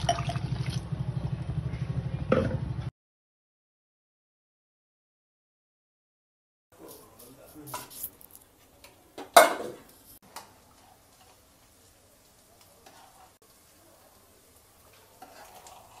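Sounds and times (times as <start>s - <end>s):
ladle stirring thick curry: 12.8s - 13.4s, 14.9s - 16.0s.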